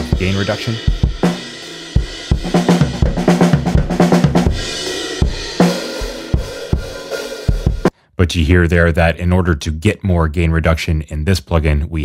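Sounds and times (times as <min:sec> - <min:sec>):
band track with drum kit: 0:00.0 - 0:07.9.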